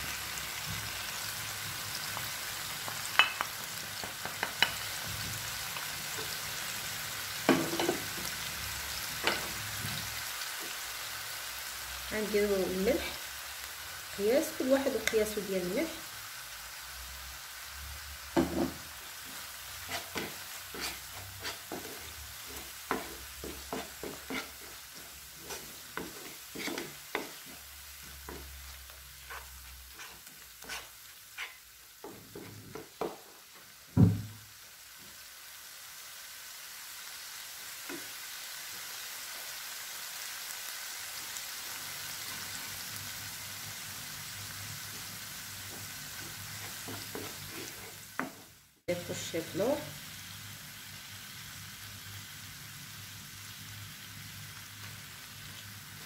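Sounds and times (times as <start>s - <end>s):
sauce sizzling in oil: 0.0s - 56.0s
wooden spoon knocking on pan: 7.5s - 8.1s, 18.4s - 18.9s, 21.7s - 27.6s, 28.2s - 28.6s, 32.0s - 33.3s, 34.0s - 34.4s, 48.2s - 48.4s.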